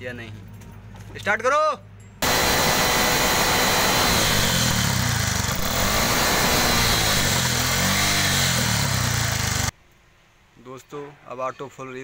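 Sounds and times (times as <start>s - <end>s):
auto-rickshaw engine revving: 2.2s - 9.7s.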